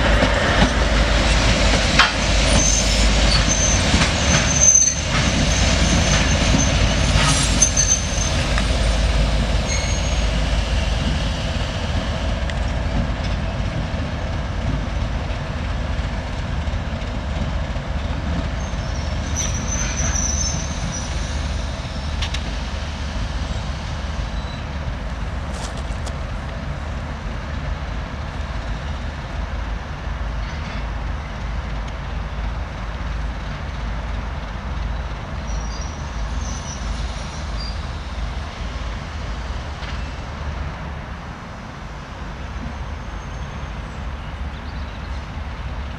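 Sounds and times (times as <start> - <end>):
diesel locomotive engines running: 0.0 - 45.9
high-pitched wheel squeals: 2.5 - 8.4, 9.6 - 10.3.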